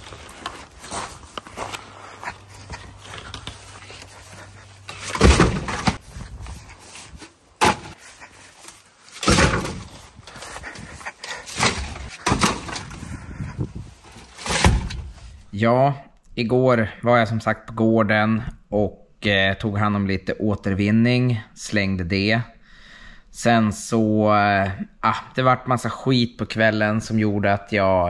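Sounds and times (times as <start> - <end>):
planks and pipes clattering: 3.3 - 6.1, 8.6 - 15.3.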